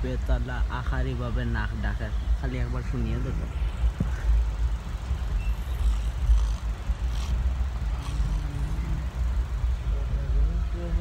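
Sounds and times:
train low rumble: 0.0s - 11.0s.

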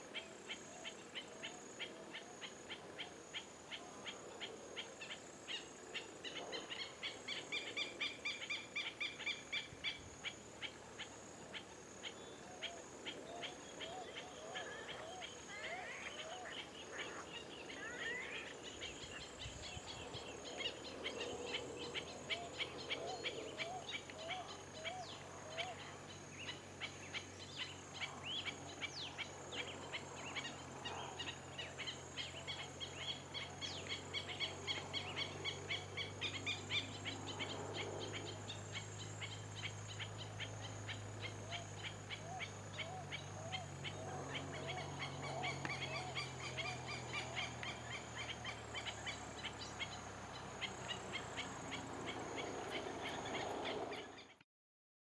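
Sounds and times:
birds chirping: 11.0s - 54.4s.

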